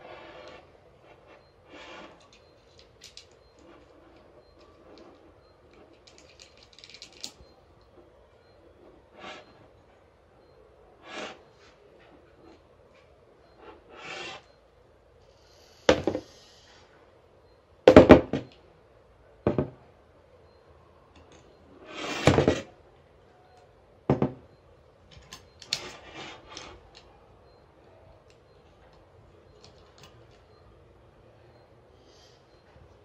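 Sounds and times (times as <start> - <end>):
short scraping slide: 11.0 - 11.5, 13.7 - 14.4, 21.8 - 22.4.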